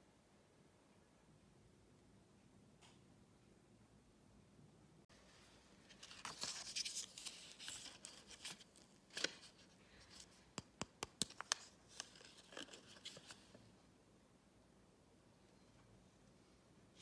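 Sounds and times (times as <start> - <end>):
sharp clicks and taps: 10.6 - 11.7.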